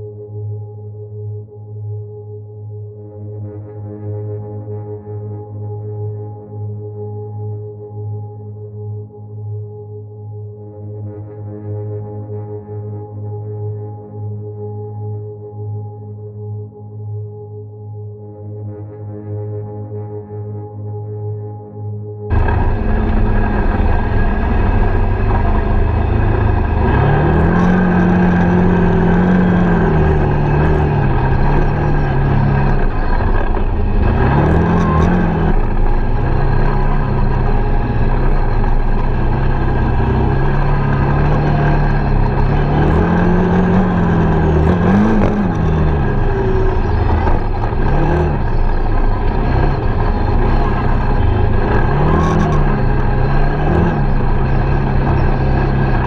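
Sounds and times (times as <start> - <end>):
quad bike engine revving: 22.3 - 56.0
steady rushing noise: 22.3 - 56.0.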